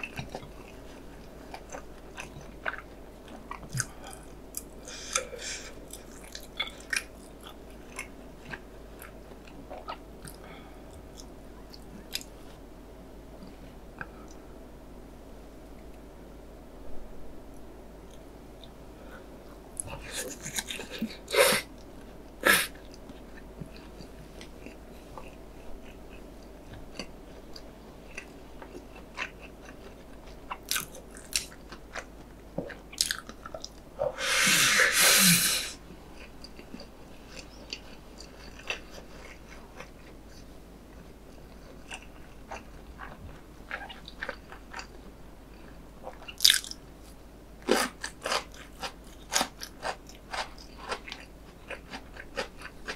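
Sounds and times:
wet chewing with mouth clicks: 36.2s - 45.0s, 47.6s - 52.9s.

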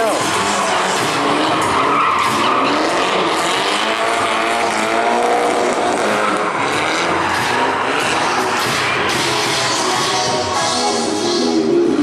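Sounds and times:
car engine revving: 0.0s - 12.0s.

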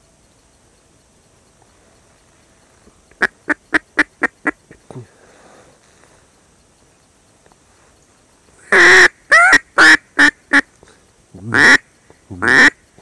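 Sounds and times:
duck quacking: 3.2s - 4.8s, 8.6s - 10.7s, 11.5s - 12.8s.

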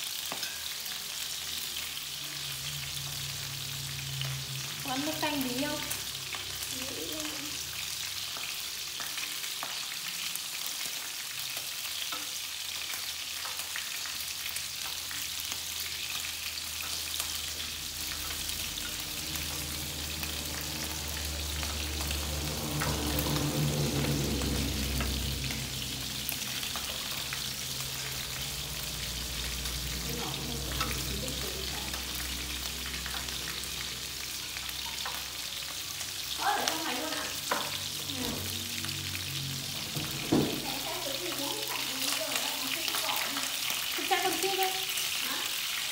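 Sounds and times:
pork frying in a pan: 0.0s - 45.9s
low hum: 17.2s - 36.0s.

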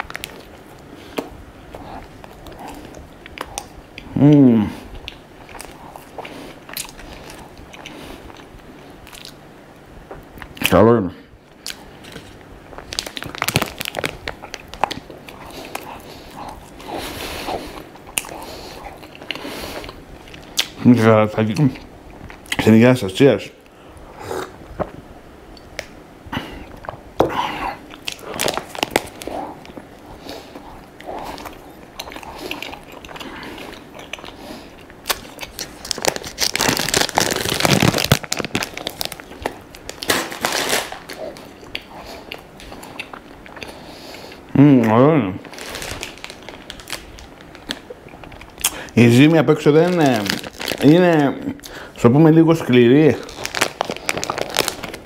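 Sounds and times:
plastic wrapper crackling: 0.0s - 0.6s, 11.7s - 15.9s, 28.0s - 29.8s, 35.0s - 41.9s, 45.4s - 51.7s, 52.4s - 55.0s
person chewing: 0.0s - 9.4s, 11.6s - 20.8s, 25.6s - 49.0s, 53.2s - 55.0s.

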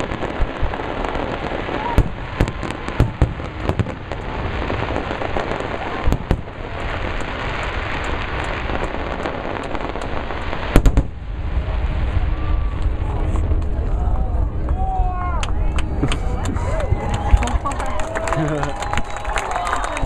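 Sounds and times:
fireworks bursting: 0.0s - 14.7s
fireworks crackle: 0.0s - 20.0s.

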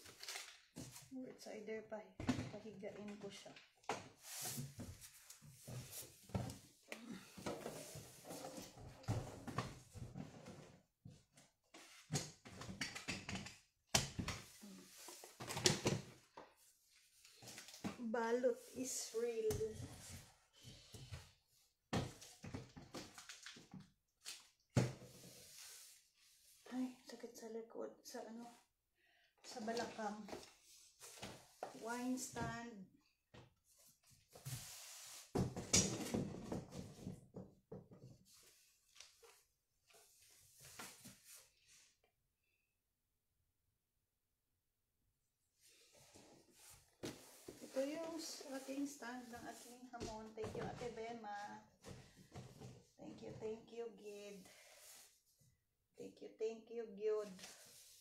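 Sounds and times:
rustling of items in cardboard box: 45.7s - 51.0s.

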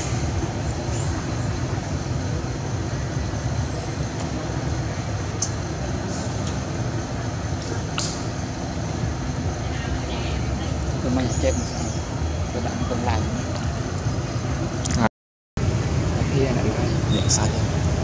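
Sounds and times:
low rumbling: 0.0s - 18.0s.

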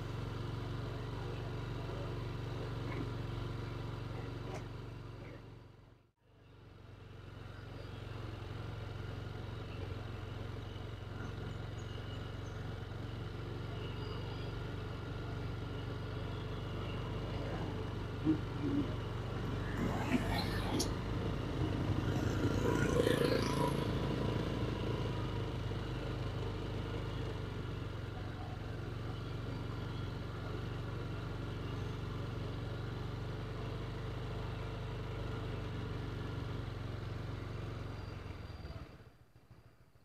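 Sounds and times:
small motorbike engine running: 6.5s - 39.1s
motorbike passing: 8.5s - 33.6s.

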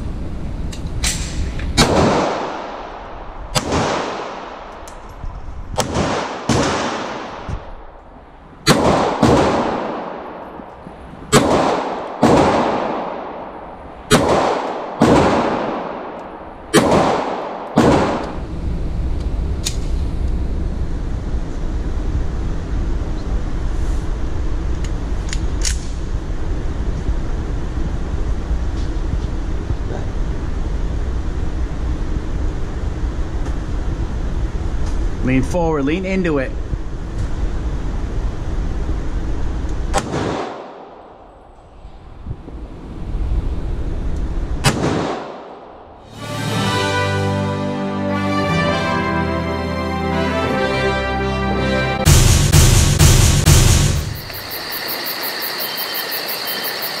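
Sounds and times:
low steady rumble: 0.0s - 46.0s
pistol shots echoing: 1.8s - 4.7s, 5.8s - 7.5s, 8.6s - 10.6s, 11.3s - 18.4s.

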